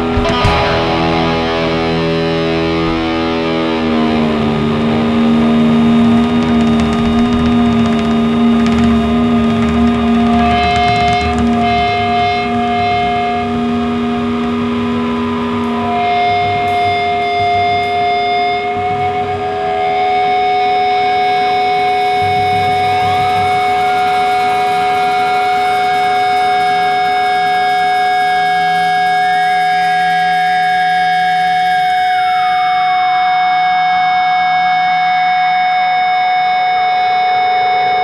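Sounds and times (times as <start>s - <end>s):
steady low tone: 0.0s - 27.6s
guitar and synth drone: 0.0s - 38.0s.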